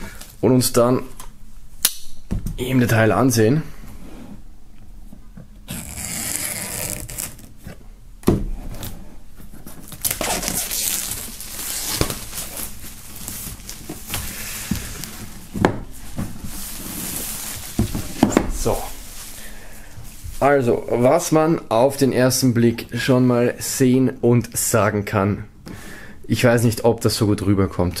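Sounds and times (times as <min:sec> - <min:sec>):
knife cutting plastic film: 0:05.7 - 0:07.5, 0:09.8 - 0:14.2
plastic film tearing and crinkling: 0:05.7 - 0:07.5, 0:09.7 - 0:15.2.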